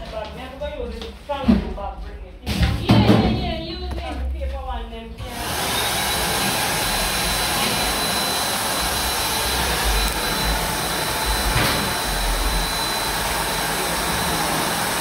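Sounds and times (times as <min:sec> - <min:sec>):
blow dryer running: 0:05.2 - 0:15.0.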